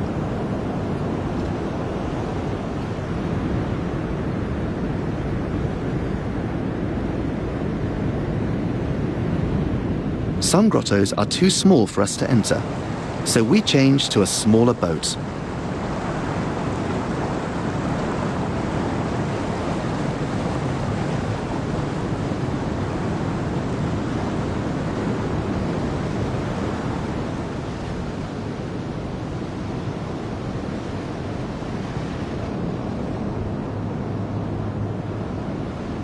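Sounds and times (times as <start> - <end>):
wind buffeting microphone: 0.0 - 11.5
rush of wind and sea water: 0.0 - 36.0.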